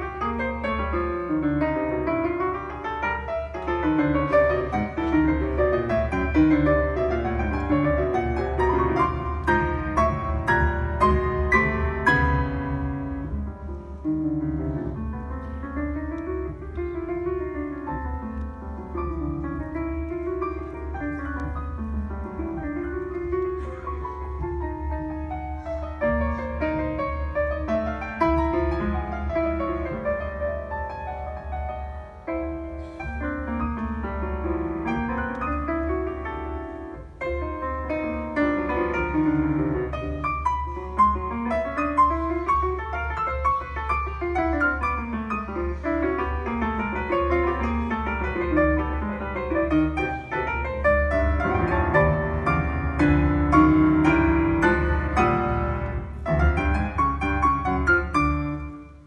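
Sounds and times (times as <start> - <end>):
solo grand piano: 0.0 - 59.0.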